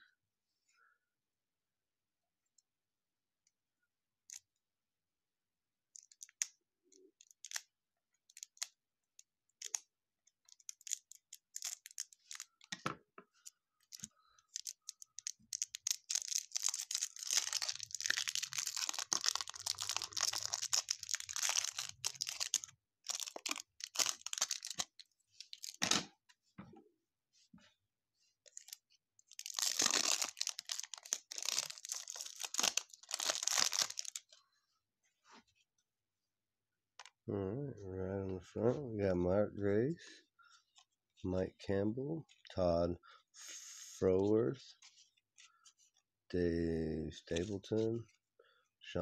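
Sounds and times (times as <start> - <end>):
cellophane crinkling: 9.5 - 12.7, 13.8 - 25.8, 28.5 - 34.4.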